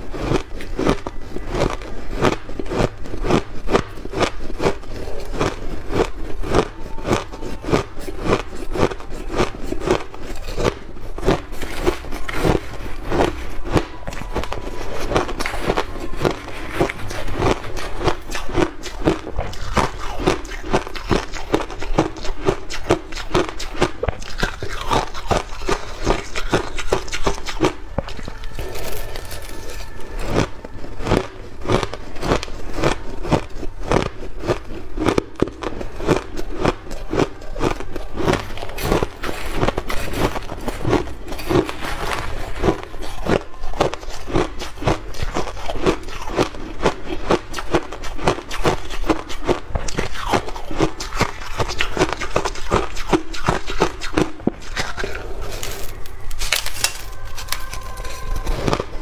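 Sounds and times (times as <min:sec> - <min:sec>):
shaved ice being chewed: 0:00.0 - 0:59.0
metal spoon scraping: 0:34.5 - 0:59.0.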